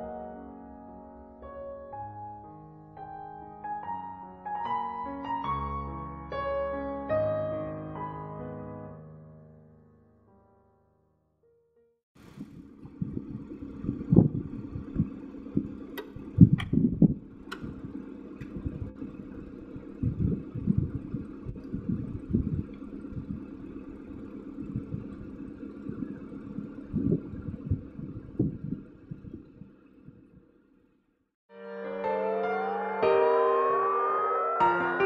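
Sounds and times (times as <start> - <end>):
wind buffeting microphone: 12.2 - 30.4
low mechanical hum: 12.2 - 30.8.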